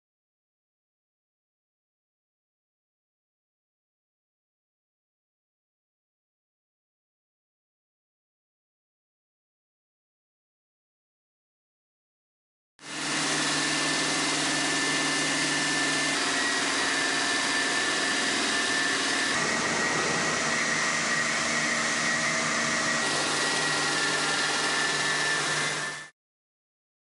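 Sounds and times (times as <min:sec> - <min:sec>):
stone saw blade cutting stone: 0:12.8 - 0:26.1.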